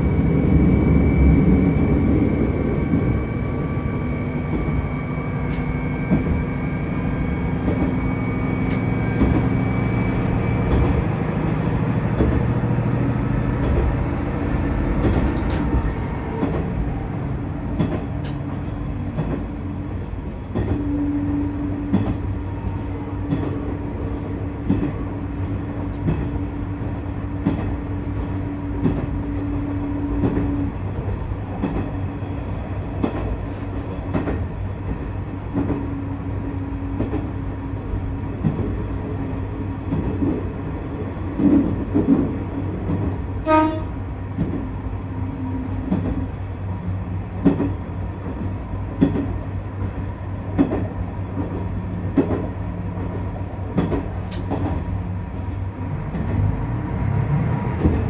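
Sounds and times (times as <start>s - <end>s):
diesel railcar drone: 0.0s - 58.0s.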